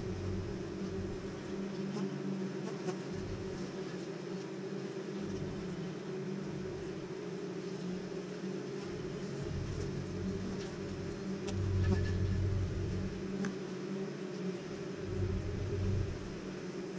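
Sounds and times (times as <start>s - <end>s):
low rumble: 0.0s - 1.6s, 9.2s - 13.5s, 15.0s - 16.5s
bees buzzing: 0.0s - 16.9s.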